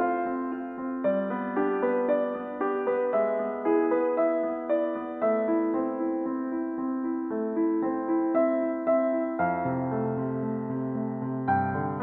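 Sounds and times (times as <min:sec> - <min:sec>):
slow piano music: 0:00.0 - 0:12.0.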